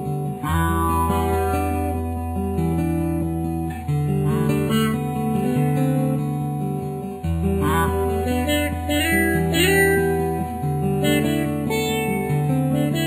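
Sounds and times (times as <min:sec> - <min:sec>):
acoustic guitar music: 0:00.0 - 0:13.0.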